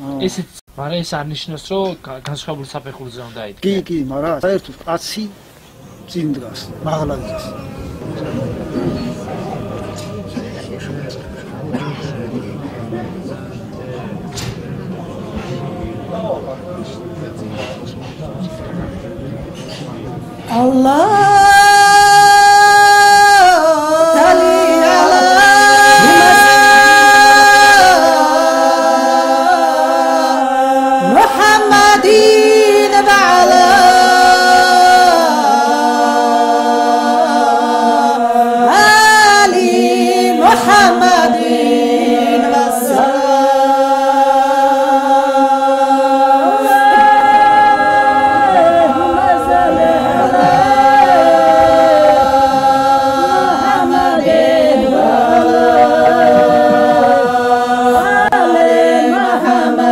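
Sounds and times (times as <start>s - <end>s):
voices singing unaccompanied: 2.8s - 59.9s
held vocal drone: 5.4s - 59.9s.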